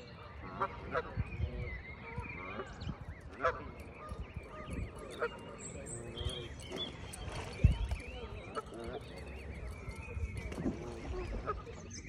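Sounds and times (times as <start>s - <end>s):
geese honking: 0.0s - 6.9s, 10.6s - 12.0s
goslings peeping: 0.1s - 12.0s.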